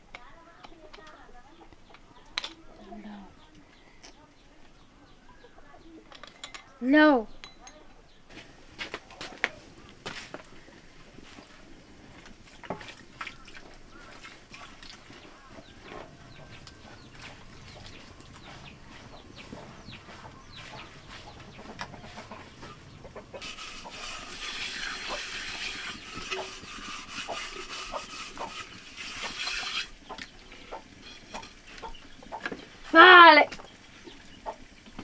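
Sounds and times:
chickens clucking: 12.3 - 35.0
steady hiss: 22.9 - 33.3.

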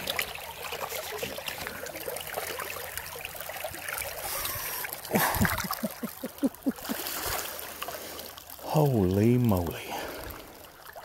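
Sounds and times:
small watery plinks: 0.0 - 11.0
water trickling over gravel: 0.0 - 11.0
hand splashing into water: 4.4 - 7.6.

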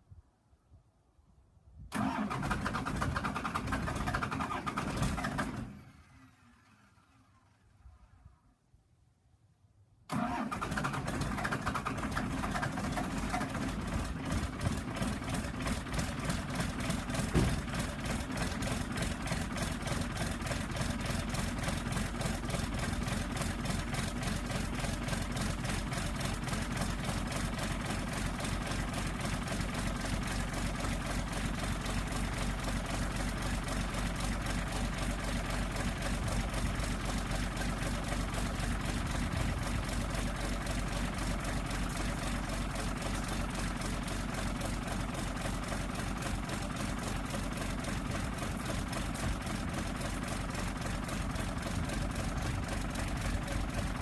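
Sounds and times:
diesel engine clattering idle: 2.0 - 7.6, 10.1 - 54.0
sharp engine knock: 17.2 - 18.0.

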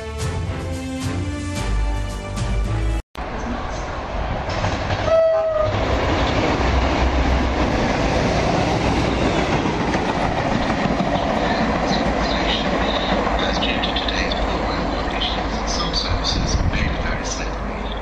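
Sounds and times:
locomotive engine rumble: 3.2 - 18.0
wheel-on-rail noise: 3.2 - 18.0
train horn blast: 5.0 - 5.8.

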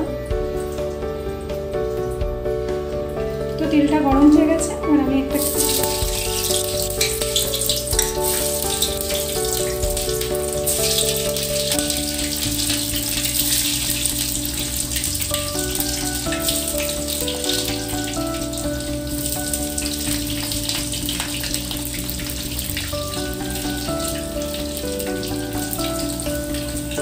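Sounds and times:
background music: 0.0 - 27.0
food sizzling in hot oil: 5.4 - 27.0.

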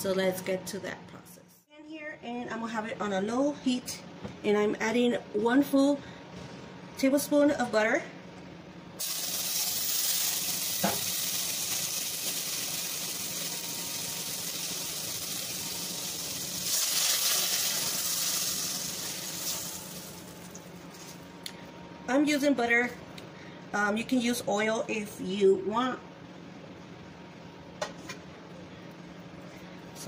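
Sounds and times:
butter sizzling in frying pan: 9.0 - 20.7.

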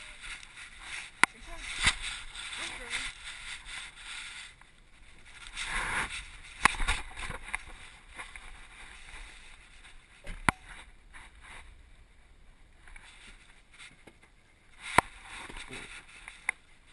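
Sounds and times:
camera rubbing against fabric: 0.0 - 11.8, 14.7 - 16.9
rustling: 0.0 - 16.9.

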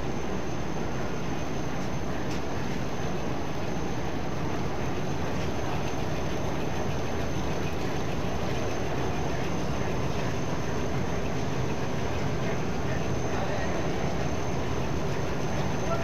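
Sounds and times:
faint high whine: 0.0 - 16.0
printing press running: 1.7 - 16.0.

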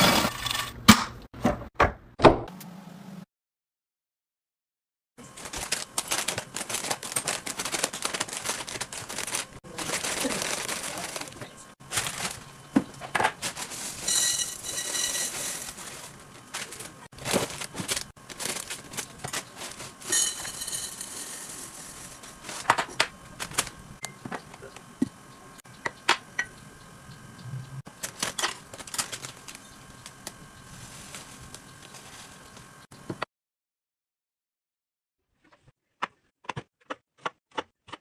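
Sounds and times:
plastic packaging crinkling: 5.3 - 23.9, 27.9 - 32.5
dry food pouring into jars: 13.4 - 22.6.

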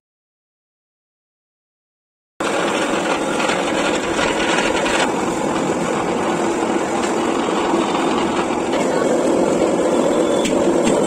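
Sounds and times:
grinding mill running: 2.4 - 11.0.

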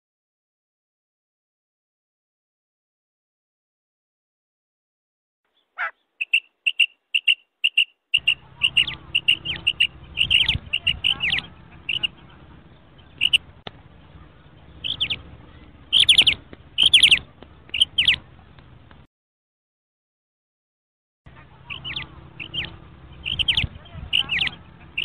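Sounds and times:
quail calling: 5.6 - 12.1, 13.2 - 13.4, 14.8 - 15.2, 15.9 - 18.2, 21.6 - 25.0
low background hum: 8.2 - 19.1.

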